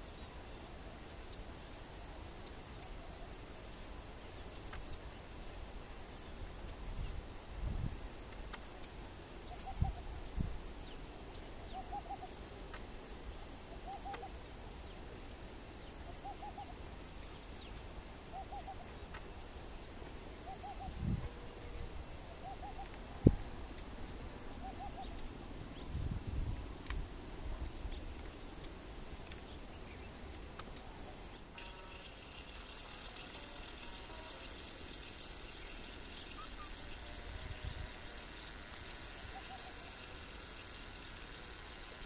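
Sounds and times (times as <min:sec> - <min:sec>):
steady high-pitched whine: 0:00.0 - 0:42.0
bird hooting call: 0:09.5 - 0:10.2, 0:11.6 - 0:12.4, 0:13.7 - 0:14.5, 0:16.0 - 0:16.8, 0:18.3 - 0:18.9, 0:20.4 - 0:23.5, 0:24.6 - 0:25.2, 0:39.2 - 0:40.1.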